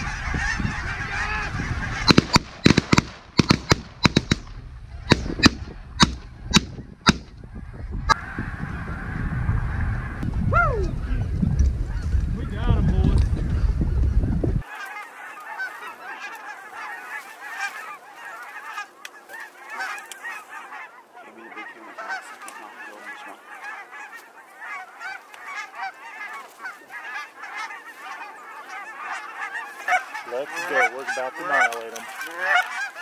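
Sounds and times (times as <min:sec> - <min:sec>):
wind rumble on microphone: 0:00.0 - 0:02.6, 0:03.5 - 0:14.6
geese honking in flight: 0:00.0 - 0:02.8, 0:04.0 - 0:10.3, 0:14.6 - 0:33.0.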